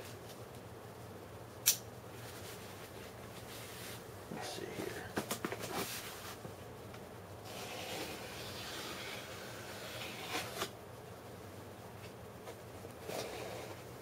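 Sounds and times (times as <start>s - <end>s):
cardboard scraping and tearing: 7.5s - 10.7s.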